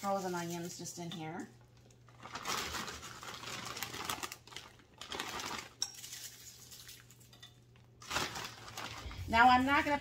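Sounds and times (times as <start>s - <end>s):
frozen onion pieces pattering: 2.0s - 10.0s
plastic bag rustling: 2.1s - 7.2s, 8.0s - 10.0s.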